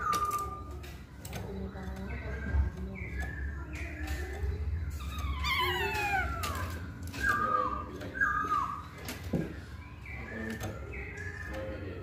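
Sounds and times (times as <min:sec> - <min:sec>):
bird singing whistled notes: 0:00.0 - 0:00.9, 0:01.6 - 0:06.5, 0:07.1 - 0:12.0.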